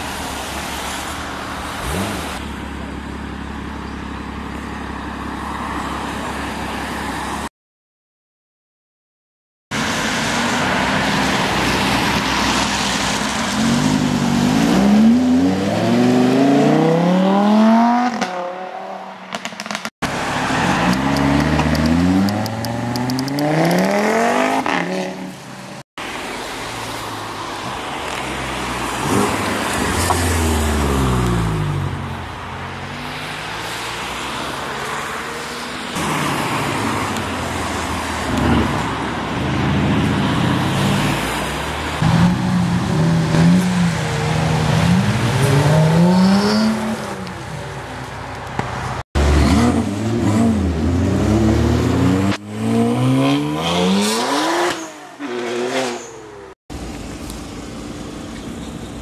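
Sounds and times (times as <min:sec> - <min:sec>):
car engines accelerating hard: 0:32.7 - 0:56.6.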